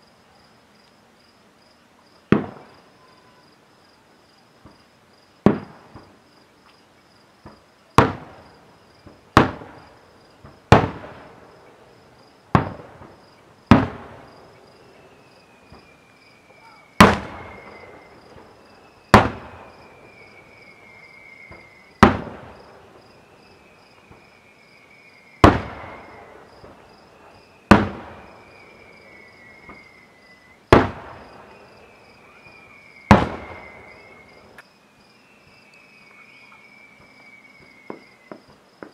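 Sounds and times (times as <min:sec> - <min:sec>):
firework shells booming: 0:02.3 - 0:02.8, 0:05.4 - 0:06.2, 0:07.4 - 0:14.8, 0:16.5 - 0:23.4, 0:25.4 - 0:30.0, 0:30.7 - 0:34.6
small firework pops: 0:02.3 - 0:02.8, 0:05.4 - 0:06.8, 0:07.4 - 0:11.4, 0:12.5 - 0:14.3, 0:15.7 - 0:19.8, 0:21.5 - 0:22.7, 0:24.0 - 0:24.3, 0:25.4 - 0:26.8, 0:27.7 - 0:28.4, 0:29.6 - 0:29.9, 0:30.7 - 0:31.6, 0:33.1 - 0:34.7, 0:37.0 - 0:38.9.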